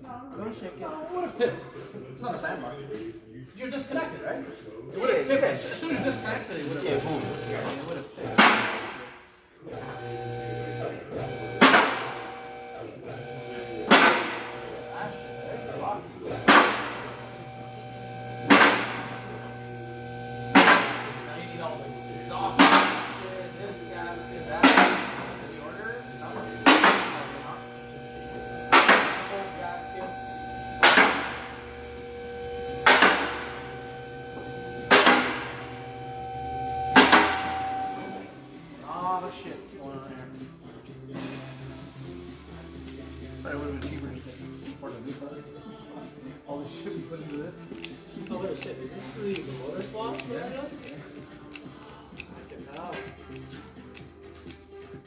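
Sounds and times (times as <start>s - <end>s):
car lift pump motor humming: 5.8s - 8.8s, 9.7s - 38.8s
faint steady whine: 10.0s - 38.9s
car lift clanking: 32.6s - 38.2s.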